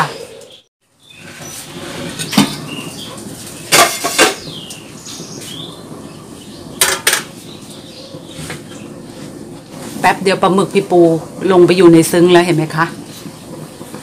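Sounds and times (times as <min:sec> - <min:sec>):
metal pot lid clanking: 0:03.7 - 0:04.5, 0:06.8 - 0:07.3.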